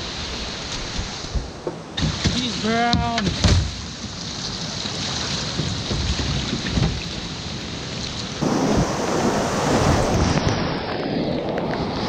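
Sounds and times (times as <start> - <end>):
wind buffeting microphone: 5.4 - 12.0
whitewater rapids rushing: 8.4 - 12.0.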